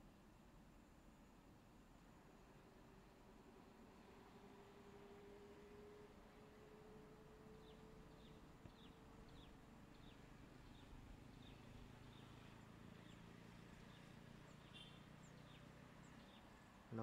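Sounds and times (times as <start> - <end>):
bird chirping: 7.6 - 16.5.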